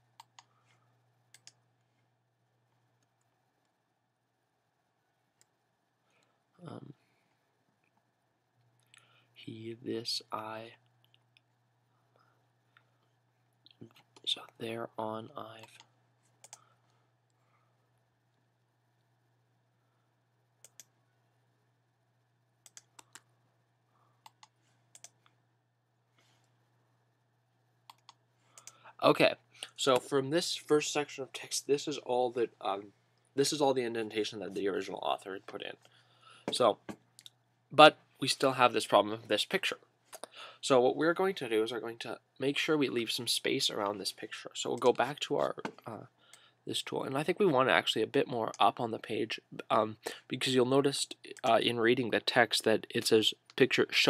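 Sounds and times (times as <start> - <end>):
low steady hum: 0.0 - 54.0
computer keys and mouse clicking: 0.2 - 0.5, 1.3 - 1.6, 15.6 - 16.7, 20.6 - 20.9, 22.6 - 23.3, 24.2 - 25.3, 27.9 - 28.8.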